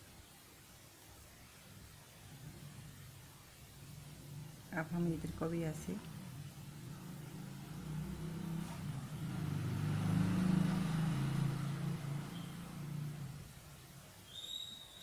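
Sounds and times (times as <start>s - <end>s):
passing vehicle engine hum: 3.8s - 13.9s.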